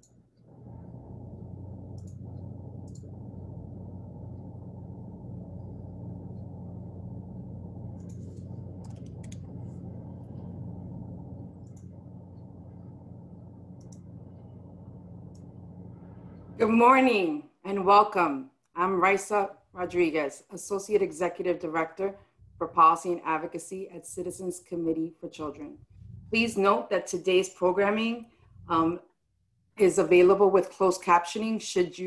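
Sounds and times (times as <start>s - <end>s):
steady low hum: 0.0s - 30.4s
faint clicks: 1.9s - 3.2s, 11.6s - 12.5s, 13.8s - 14.6s.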